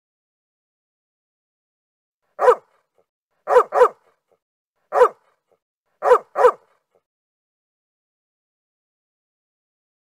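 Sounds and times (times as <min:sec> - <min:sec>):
dog barking: 0:02.4 - 0:04.2, 0:04.9 - 0:07.0.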